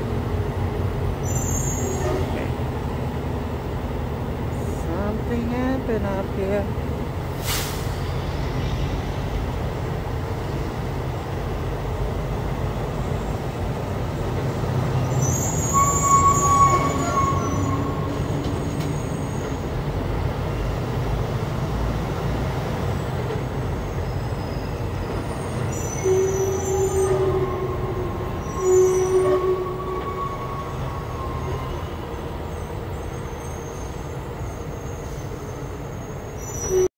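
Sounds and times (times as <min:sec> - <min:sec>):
brakes squealing: 0:14.9 - 0:19.6.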